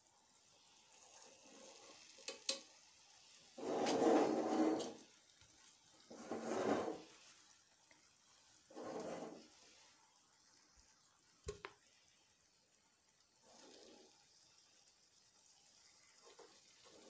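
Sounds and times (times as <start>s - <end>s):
pan scraping on stove grate: 3.6s - 5.1s, 6.1s - 7.2s, 8.7s - 9.6s.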